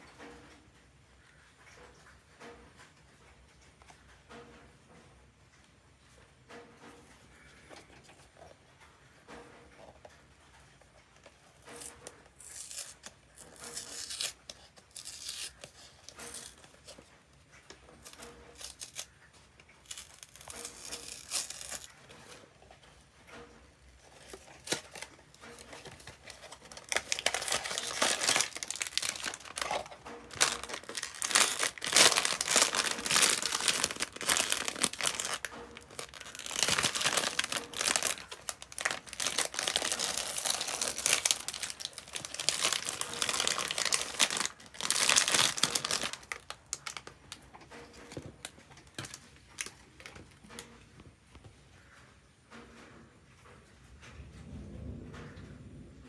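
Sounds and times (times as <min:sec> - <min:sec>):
foil bag crinkling and tearing: 0:11.6 - 0:17.1, 0:18.0 - 0:22.2, 0:24.0 - 0:47.4.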